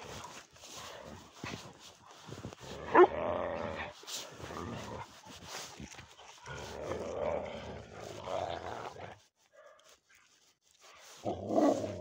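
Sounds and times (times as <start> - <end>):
dogs growling: 2.5 - 10.0, 11.1 - 12.0.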